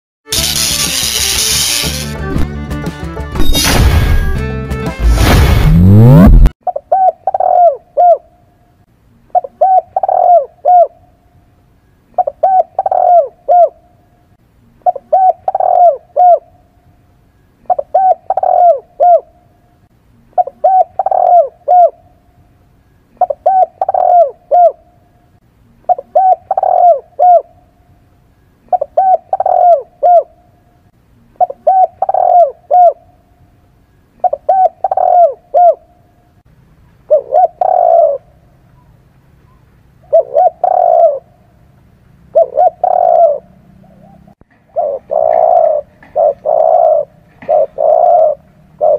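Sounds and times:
dove cooing: 6.7 - 8.4, 9.3 - 11.1, 12.1 - 13.9, 14.8 - 16.6, 17.7 - 19.4, 20.4 - 22.1, 23.2 - 25.0, 25.9 - 27.6, 28.6 - 30.5, 31.4 - 33.1, 34.2 - 36.0, 37.1 - 38.9, 39.5 - 41.4, 42.3 - 48.9.

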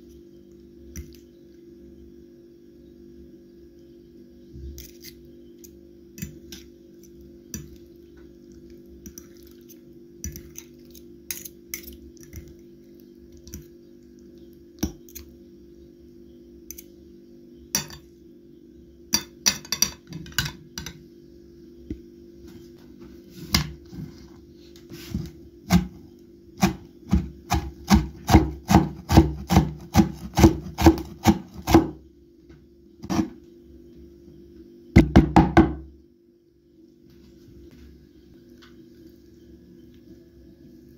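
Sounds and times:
low steady hum: 0.0 - 40.9
knife chopping on wooden board: 26.6 - 32.0.

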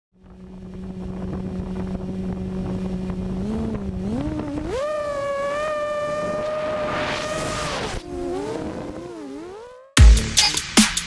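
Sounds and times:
quadcopter motors whining: 0.2 - 10.6.

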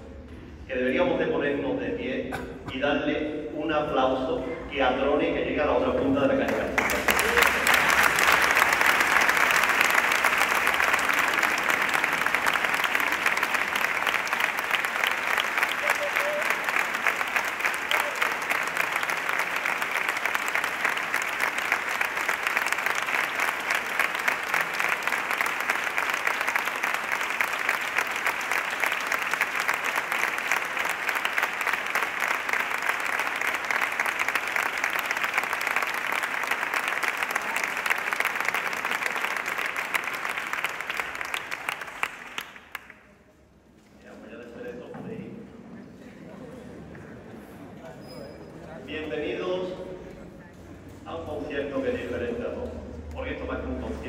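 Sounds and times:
audience applauding: 6.5 - 43.1.

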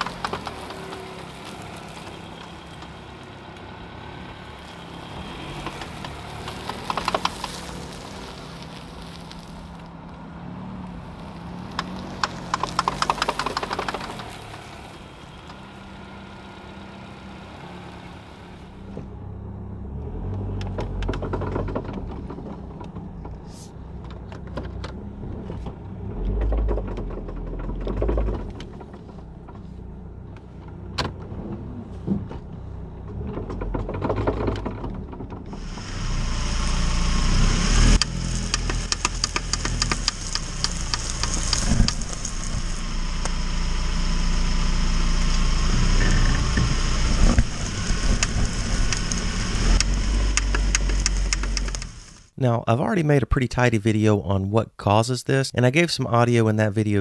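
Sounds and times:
road and tyre noise: 0.0 - 54.4
car joints clicking: 11.7 - 14.6, 24.0 - 36.1, 45.8 - 52.2.

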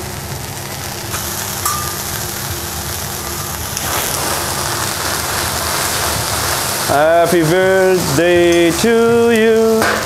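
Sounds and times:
sizzling on a hot griddle: 0.0 - 10.0
flare-up of fire: 0.2 - 8.2.

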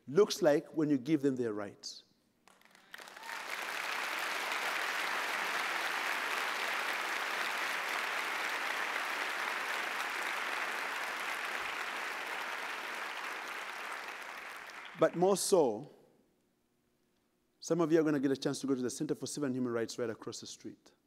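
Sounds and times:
audience applauding: 2.5 - 15.2.

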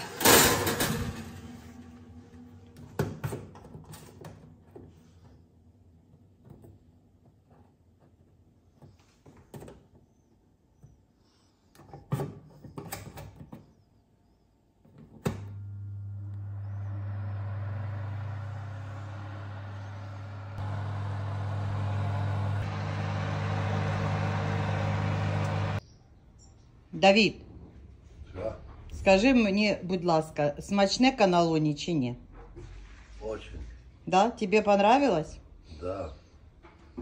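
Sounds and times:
oven fan humming: 15.3 - 25.8.

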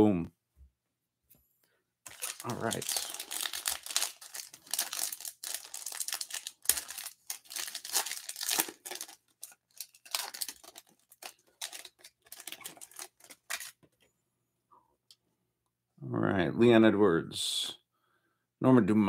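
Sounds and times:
foil wrapper crinkling: 2.1 - 13.9.

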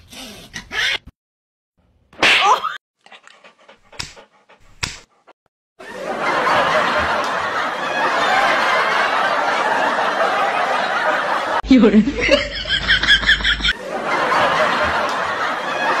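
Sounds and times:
dog breathing loudly: 3.1 - 5.4.

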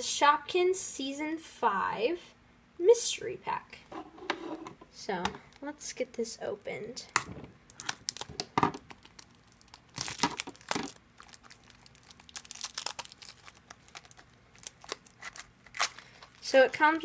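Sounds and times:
plastic wrapper crinkling and tearing: 7.7 - 17.0
scissors cutting plastic wrapper: 7.8 - 16.6.

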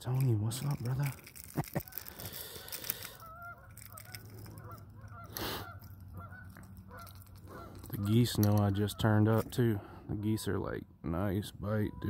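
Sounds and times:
geese honking: 3.0 - 9.5.

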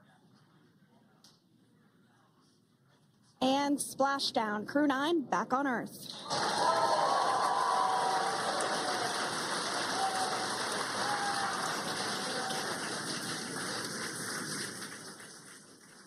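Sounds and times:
crowd applauding and cheering: 6.2 - 16.0
faint whoops: 6.3 - 12.8.

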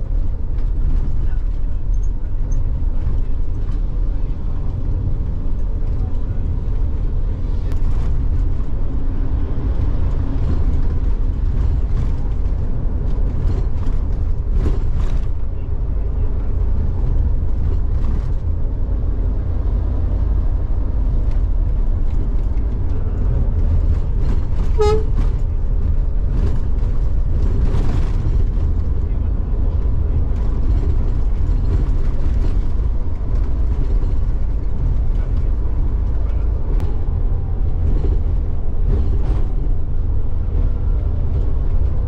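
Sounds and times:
bus engine and road noise: 0.0 - 42.0
short horn toot: 24.6 - 25.3.

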